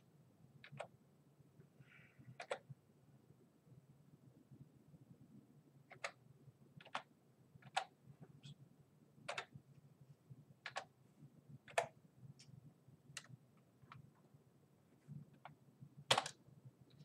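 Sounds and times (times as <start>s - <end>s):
faint low hum: 0.0s - 17.0s
keyboard keys clicking: 9.3s - 9.5s.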